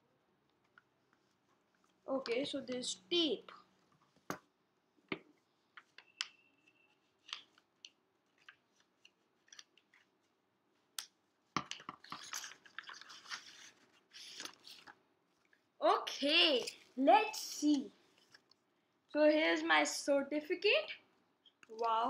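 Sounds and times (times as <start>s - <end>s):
paper rustling and crinkling: 6.9s - 10.3s, 11.7s - 15.6s.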